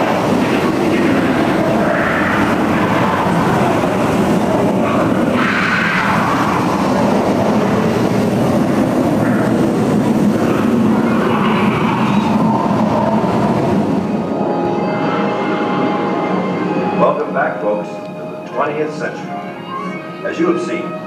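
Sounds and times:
rumbling roar sound effects: 0:00.0 - 0:14.0.

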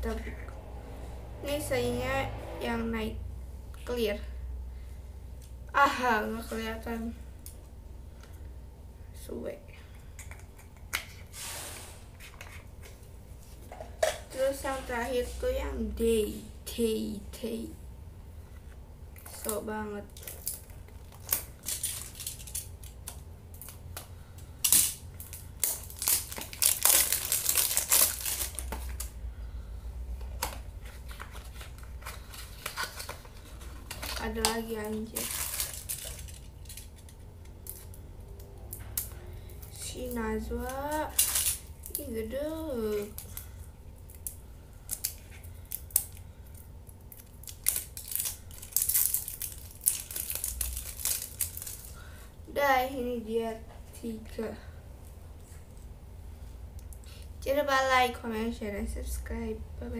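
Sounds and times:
packaging crinkling and tearing: 0:19.2 - 0:29.2, 0:30.3 - 0:38.0, 0:38.7 - 0:42.1, 0:42.8 - 0:52.2.

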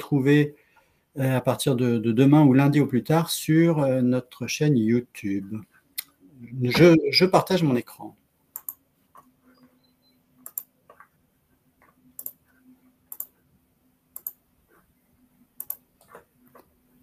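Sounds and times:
faint steady hum: 0:00.0 - 0:17.0
computer mouse clicks: 0:08.5 - 0:09.7, 0:10.4 - 0:11.1, 0:11.8 - 0:12.5, 0:13.1 - 0:13.4, 0:14.1 - 0:14.9, 0:15.6 - 0:16.8.

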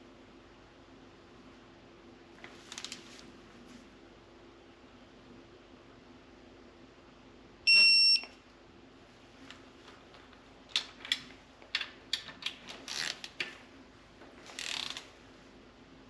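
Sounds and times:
high short beep: 0:07.7 - 0:08.3.

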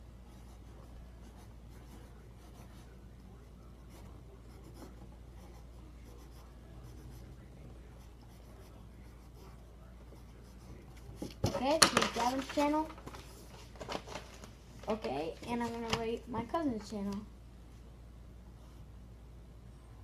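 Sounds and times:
steady low hum: 0:00.0 - 0:20.0
pencil scratching on paper: 0:00.3 - 0:03.0, 0:03.8 - 0:12.4.

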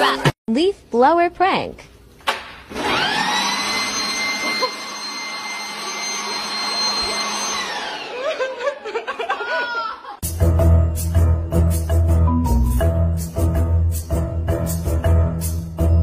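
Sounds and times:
leaf blower whining: 0:02.7 - 0:08.4
woman crying out and laughing: 0:08.2 - 0:10.2
music: 0:10.2 - 0:16.0.

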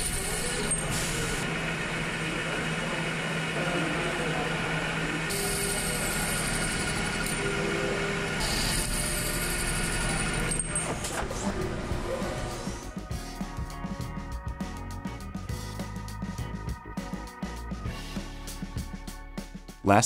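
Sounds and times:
lathe humming: 0:00.0 - 0:13.1.

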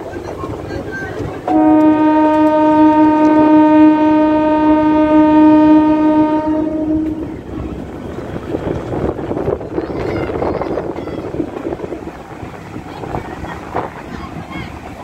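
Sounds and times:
moving train running noise: 0:00.0 - 0:15.0
train horn blast: 0:01.5 - 0:07.4.

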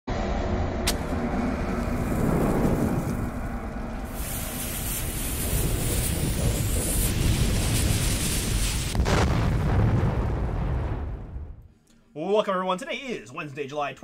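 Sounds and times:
low rumble: 0:00.1 - 0:11.8
burning fuse hissing: 0:01.8 - 0:09.2.

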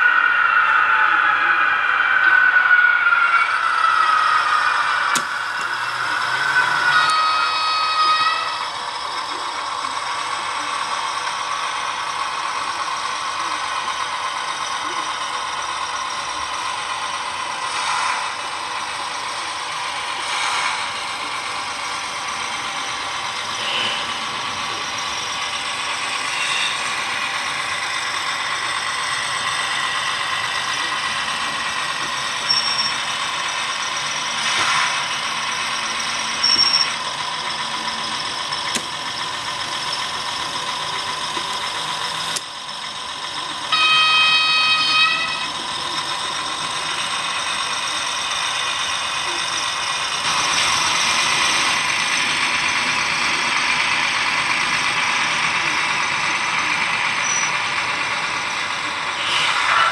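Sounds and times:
model train motor whirring: 0:00.7 - 0:59.9.

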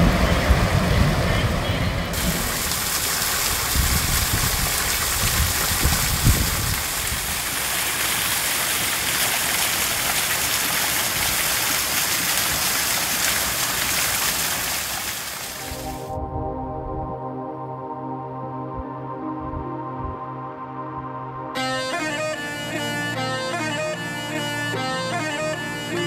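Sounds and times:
waterfall splashing into pool: 0:02.1 - 0:16.1.

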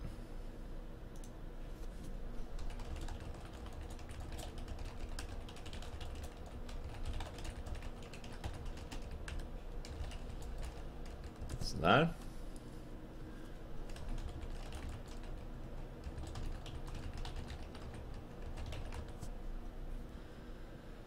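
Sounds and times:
keyboard typing: 0:02.5 - 0:11.8, 0:13.8 - 0:19.3.

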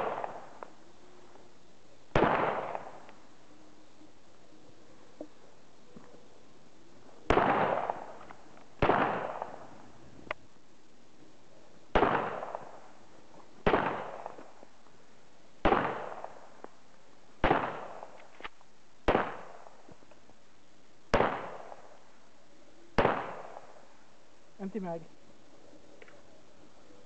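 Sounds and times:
pistol shots echoing: 0:00.0 - 0:00.6, 0:02.1 - 0:03.1, 0:07.3 - 0:09.8, 0:11.9 - 0:13.0, 0:13.6 - 0:14.5, 0:15.6 - 0:16.6, 0:17.4 - 0:18.2, 0:19.0 - 0:19.8, 0:21.1 - 0:22.0, 0:23.0 - 0:23.8.

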